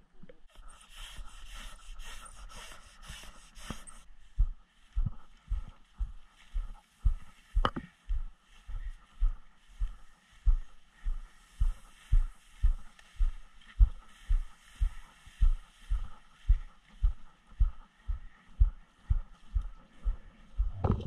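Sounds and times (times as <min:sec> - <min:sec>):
grass brushing: 0:00.5 - 0:04.1, 0:08.5 - 0:17.5
footsteps through tall grass: 0:00.7 - 0:20.8.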